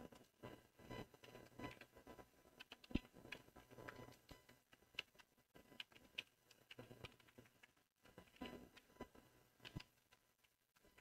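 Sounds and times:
keyboard typing: 2.6 - 4.3, 4.9 - 8.9.

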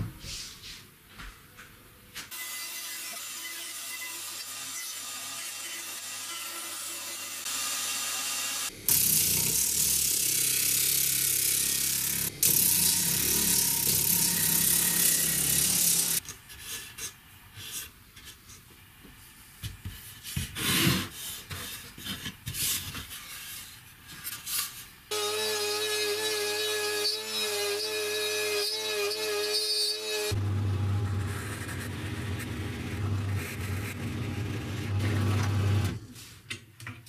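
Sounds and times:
power tool running: 5.0 - 16.2, 25.1 - 33.4.

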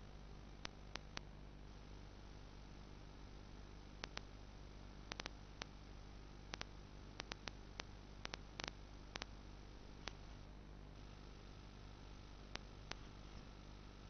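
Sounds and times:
hiss and low hum: 0.0 - 14.0
sharp clicks: 4.0 - 4.3, 5.1 - 5.8, 6.5 - 9.3.

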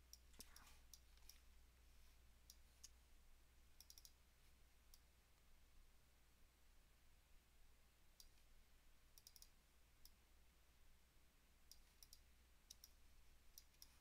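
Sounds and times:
computer mouse clicks: 0.1 - 1.5, 3.8 - 4.2, 8.2 - 8.4, 9.2 - 10.2, 11.7 - 13.0, 13.6 - 14.0.

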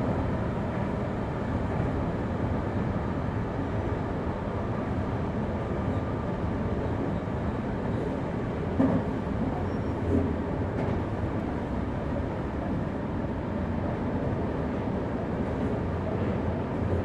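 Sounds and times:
electric train rumbling on track: 0.0 - 17.0
train knocks: 8.7 - 11.2.

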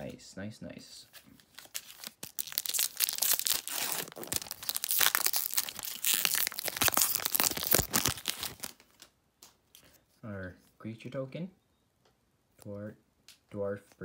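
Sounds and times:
foil wrapper crinkling and tearing: 1.4 - 9.1.

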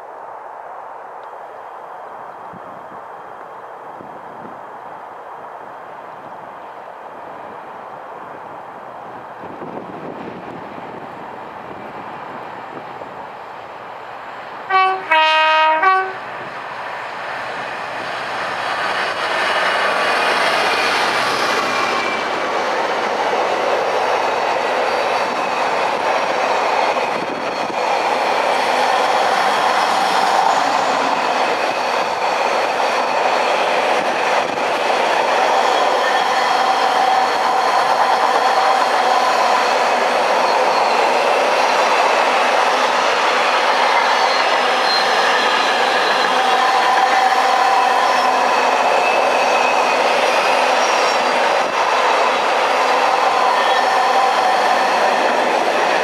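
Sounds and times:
diesel locomotive passing: 1.0 - 56.0
two-note train horn: 14.7 - 16.2
train wheels clattering on track: 17.2 - 56.0.

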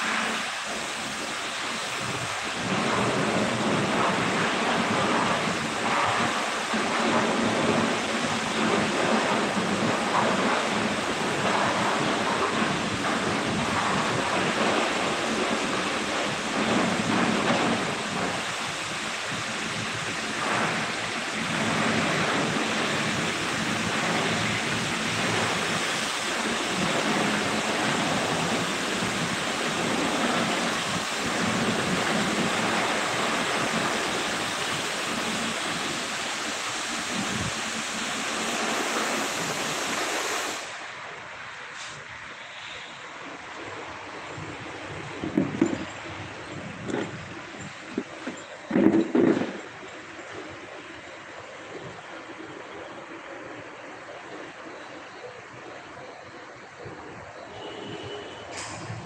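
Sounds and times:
pressure washer spraying water: 0.0 - 40.9.

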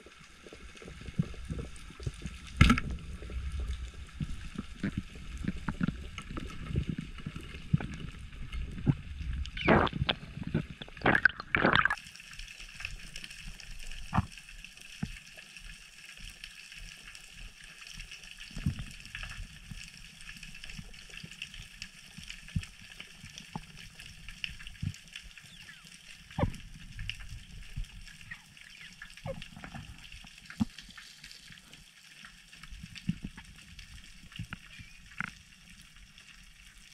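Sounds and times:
underwater clicks and knocks: 1.2 - 3.0, 14.0 - 14.3, 26.3 - 27.9.

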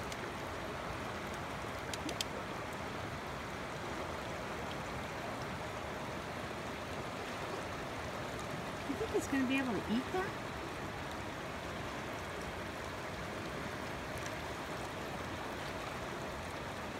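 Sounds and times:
creek water over rocks: 0.0 - 16.9
faint clicks: 1.2 - 2.8.

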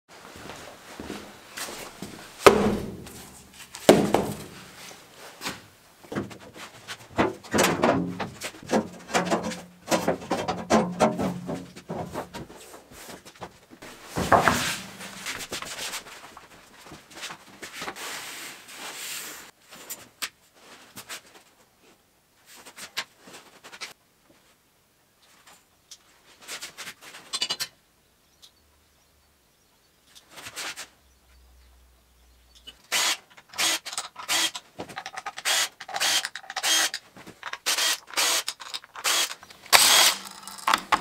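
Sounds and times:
rubber belting thumping on concrete: 2.4 - 4.6, 14.1 - 15.6
steel slats knocking: 2.4 - 4.6.

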